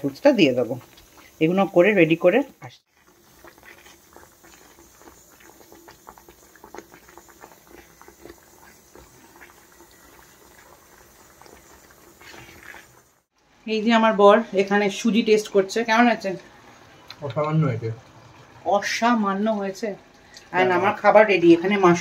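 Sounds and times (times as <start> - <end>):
halwa bubbling and popping in a pan: 0.0 - 13.5, 15.4 - 22.0
spatula stirring: 2.8 - 13.3.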